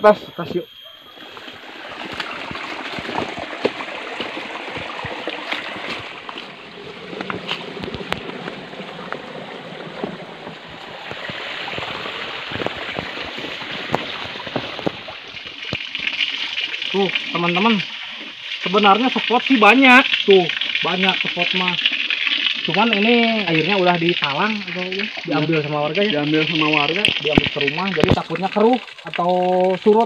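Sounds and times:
stream running: 0.0 - 30.0
footsteps: 1.9 - 15.6.

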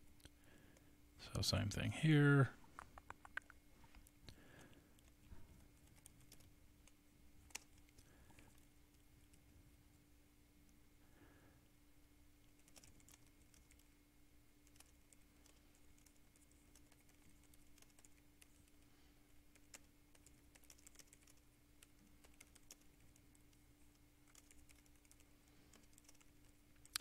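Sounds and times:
steady low hum: 0.0 - 27.0
computer keyboard typing: 5.0 - 9.4, 12.4 - 13.9, 14.6 - 18.8, 19.5 - 27.0.

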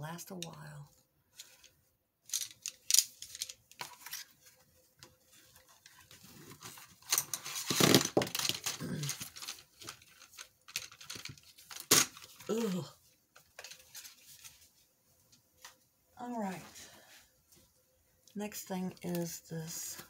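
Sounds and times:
plastic packaging crinkling: 6.0 - 12.7.

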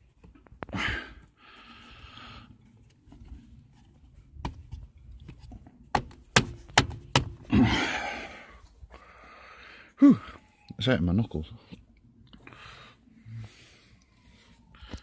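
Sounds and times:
person breathing strained: 0.7 - 2.6, 7.5 - 10.4
sharp knocks and clicks: 5.9 - 7.4.

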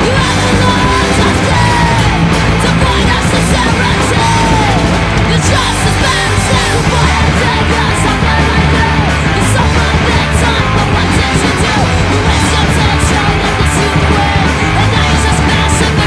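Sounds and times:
loud punk band playing: 0.0 - 16.0
shouted vocals: 0.0 - 16.0.

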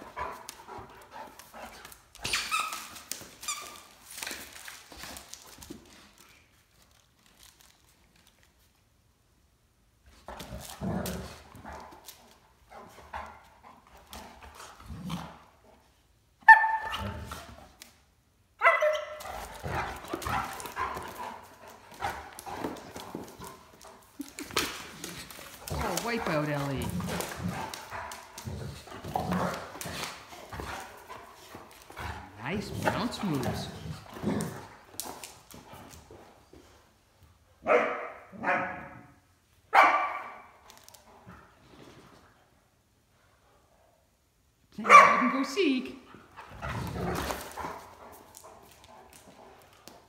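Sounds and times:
claws clicking on floor: 0.0 - 8.8, 19.2 - 36.7, 40.6 - 41.3, 46.4 - 50.0
dogs scuffling: 0.0 - 8.8, 19.1 - 37.0, 45.3 - 50.0
dog barking: 16.5 - 17.0, 18.6 - 19.2, 37.6 - 39.1, 39.7 - 40.5, 44.8 - 45.3.

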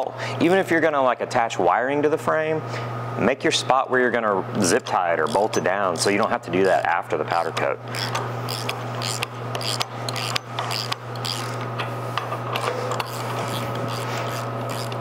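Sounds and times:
low shop hum: 0.0 - 15.0
ratchet wrench clicking: 7.9 - 11.8, 12.6 - 15.0.

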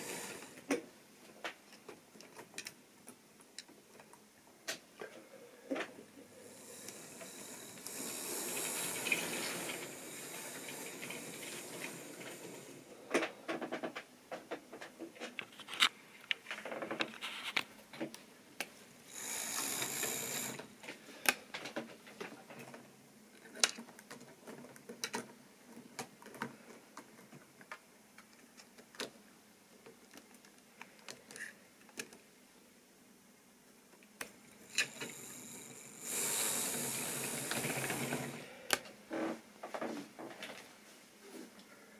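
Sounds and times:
whirring hiss: 0.0 - 0.8, 5.7 - 13.3, 19.1 - 20.8, 34.6 - 38.7.

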